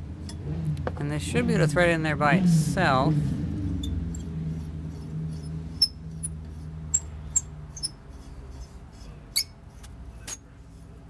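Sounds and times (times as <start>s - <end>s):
metal threads squeaking and clicking: 3.8s - 10.5s.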